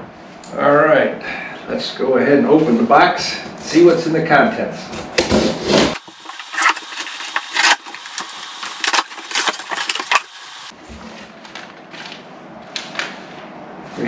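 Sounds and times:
cardboard flaps scraping: 5.0 - 14.0
paper rustling: 5.3 - 14.0
packing tape ripping: 5.8 - 10.7.

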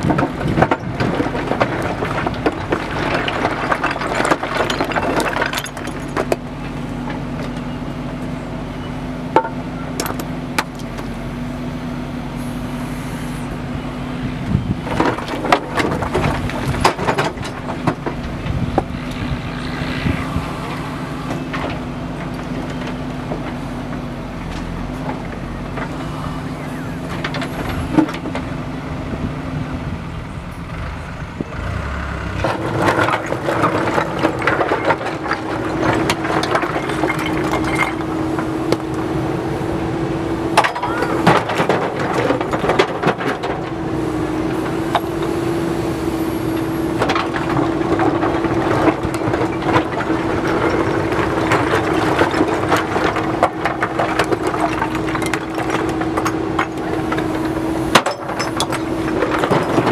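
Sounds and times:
rocks knocking and clattering: 0.0 - 7.6, 14.6 - 28.6, 32.4 - 39.1, 40.5 - 43.9, 46.5 - 59.9
diesel engine running: 0.0 - 59.9.

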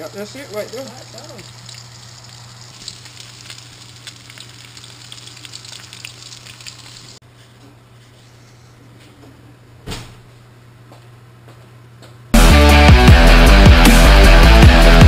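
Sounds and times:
fish sizzling in hot oil: 0.0 - 7.2.

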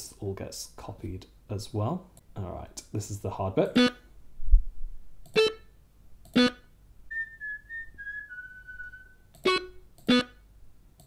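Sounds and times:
person whistling a tune: 7.1 - 9.6.

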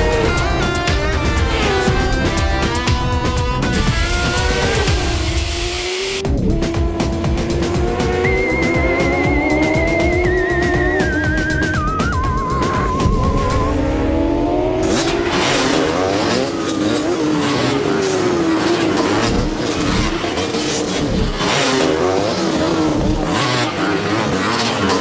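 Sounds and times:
motorbike engines whining and revving: 0.0 - 25.0.

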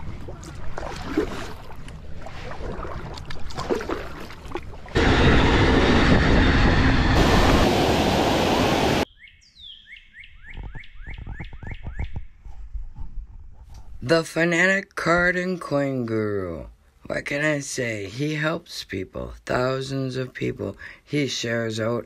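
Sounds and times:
water lapping against kayak: 0.0 - 5.0
train rushing past: 5.0 - 9.0
bird chirping: 9.0 - 12.4.

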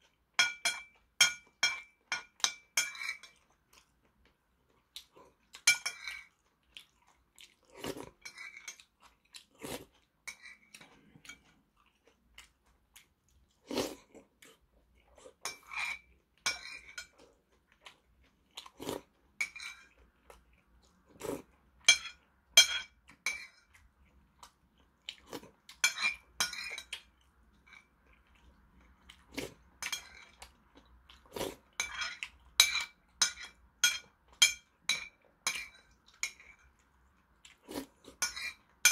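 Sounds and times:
metal spoon clinking on porcelain bowl: 0.4 - 3.4, 5.6 - 6.3, 15.4 - 17.2, 21.8 - 23.6, 25.8 - 26.9, 29.8 - 30.4, 31.8 - 36.7, 38.2 - 38.9
person chewing: 2.9 - 21.9, 23.0 - 33.6, 35.5 - 38.9.

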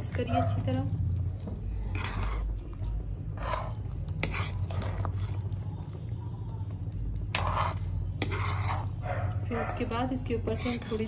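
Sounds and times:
steady low hum: 0.0 - 11.0
metal spatula scraping a pan: 1.8 - 2.6, 3.3 - 5.6, 7.3 - 11.0.

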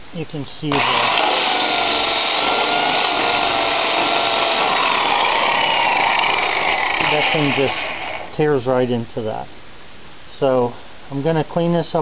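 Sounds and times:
polisher grinding paint off metal: 0.7 - 8.3.

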